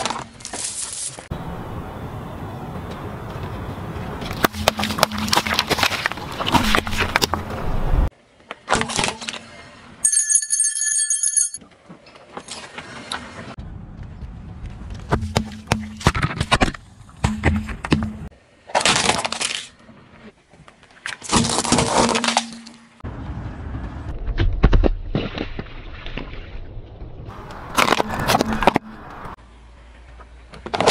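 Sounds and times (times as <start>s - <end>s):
tyre crushing objects: 4.2s - 7.8s.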